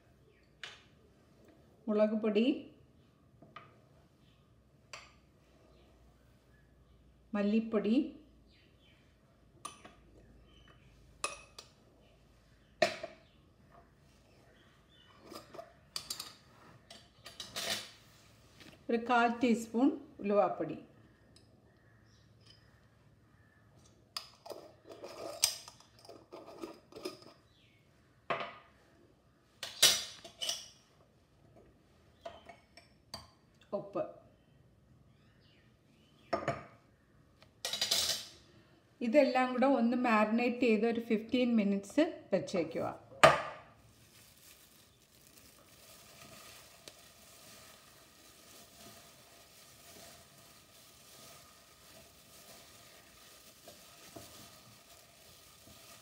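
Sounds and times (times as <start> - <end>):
squishing of food mixed by hand: 43.8 - 56.0.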